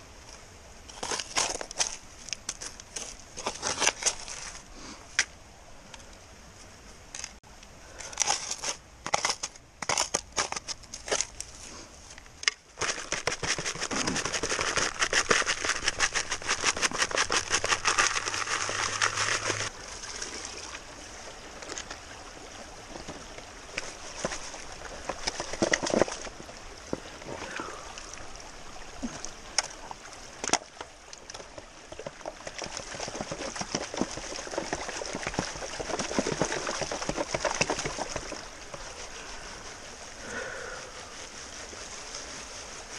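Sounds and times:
gravel rattling in a pan: 8.0s - 11.5s, 12.8s - 19.7s, 22.9s - 26.5s, 30.4s - 39.4s
stones clacking: 23.0s - 27.0s.

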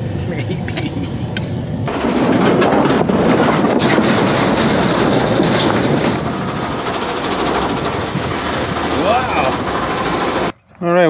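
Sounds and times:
concrete slabs scraping and grinding: 1.9s - 10.5s.

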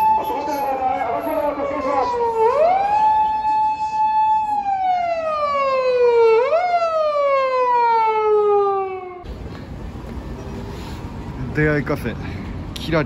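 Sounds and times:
emergency siren wailing: 0.0s - 9.3s.

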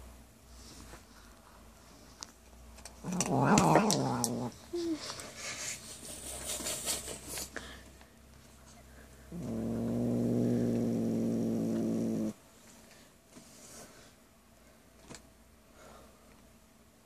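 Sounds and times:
cat growling low: 3.0s - 5.0s, 9.3s - 12.4s.

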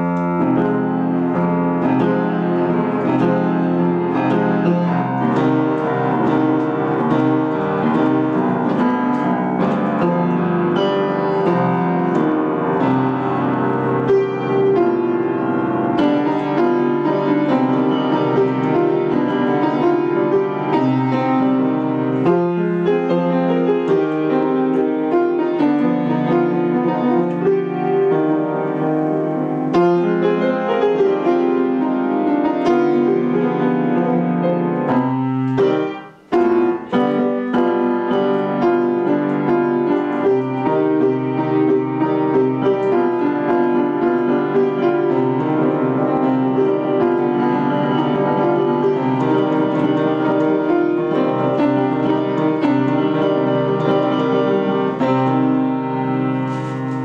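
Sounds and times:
grand piano playing: 0.0s - 57.0s.

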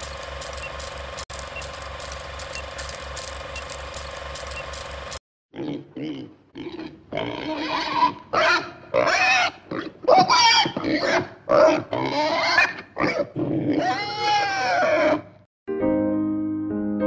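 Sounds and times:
young man roaring and yelling: 13.8s - 15.2s.

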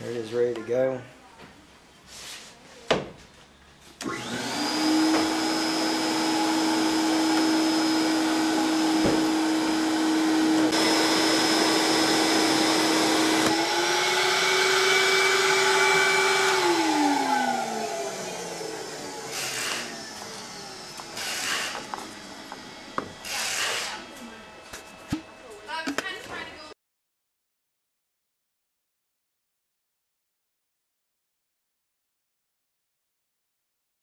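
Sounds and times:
vacuum cleaner running: 4.0s - 25.4s.

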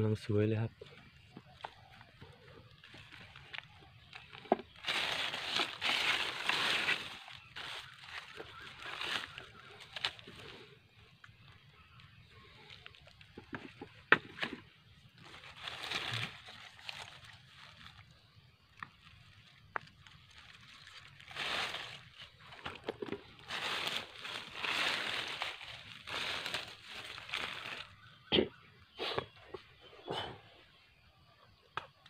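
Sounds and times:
footsteps crunching through dry leaves: 1.1s - 10.8s, 11.4s - 28.2s
twigs snapping: 2.8s - 10.5s, 15.2s - 18.1s, 18.7s - 28.0s.

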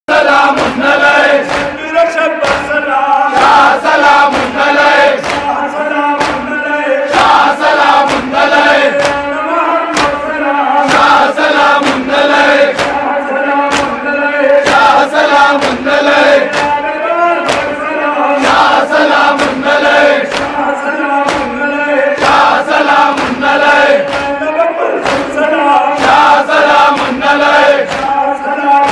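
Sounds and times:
crowd chanting in unison: 0.1s - 28.9s
hands slapping chests: 0.5s - 1.8s, 2.4s - 5.6s, 6.2s - 6.5s, 7.1s - 9.3s, 9.9s - 10.2s, 10.9s - 13.0s, 13.7s - 14.0s, 14.6s - 16.8s, 17.5s - 17.8s, 18.4s - 20.6s, 21.2s - 21.6s, 22.2s - 24.4s, 25.0s - 28.2s.

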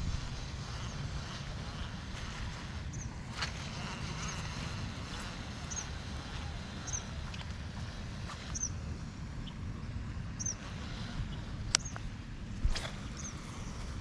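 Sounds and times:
steady low rumble: 0.0s - 14.0s
small bird chirping: 2.9s - 9.7s, 10.4s - 12.1s, 13.0s - 13.4s.

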